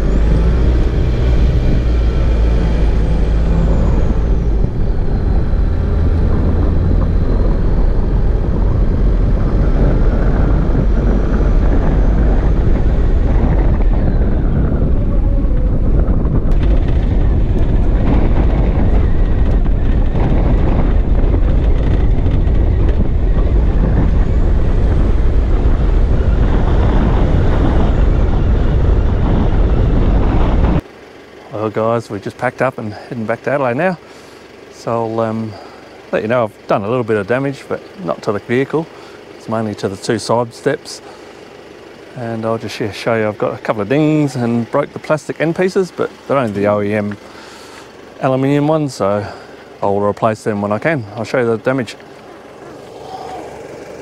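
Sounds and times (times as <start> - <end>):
wind noise on microphone: 0.0 - 30.8
vehicle low rumble: 0.0 - 54.0.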